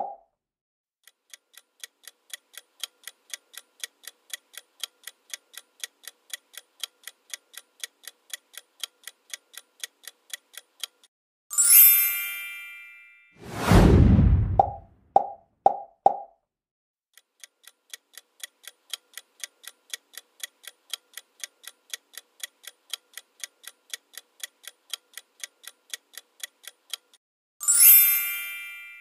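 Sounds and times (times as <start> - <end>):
clock ticking: 1.0 - 11.1, 17.2 - 27.2
bright chime: 27.6 - 29.0.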